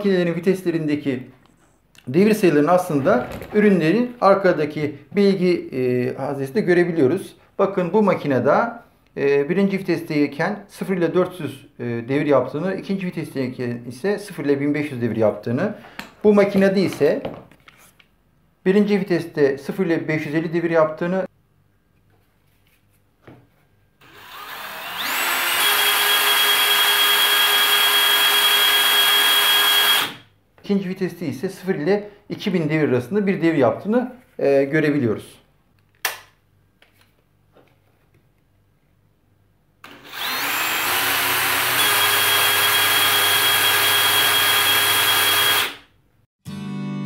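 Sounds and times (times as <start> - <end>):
drill motor whine: 24.0 - 30.2, 39.8 - 45.8.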